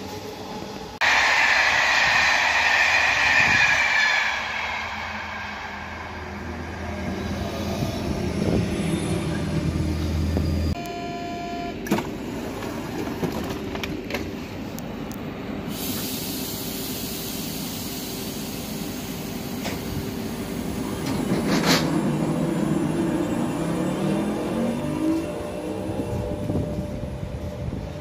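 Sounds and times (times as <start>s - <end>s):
electric train whine: 0.0s - 10.8s, 16.6s - 28.0s
loud hiss of air: 1.0s - 8.6s, 15.7s - 20.7s.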